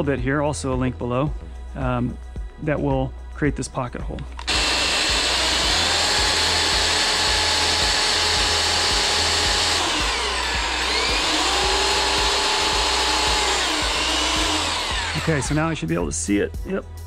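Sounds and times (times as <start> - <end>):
electric drill boring into wood: 4.4 - 15.7.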